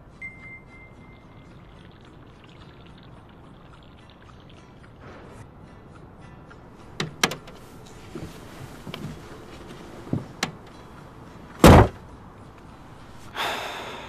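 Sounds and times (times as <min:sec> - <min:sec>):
car door shutting: 0:07.0 - 0:10.7, 0:11.6 - 0:12.0
small clicks and knocks in car: 0:07.0 - 0:10.8.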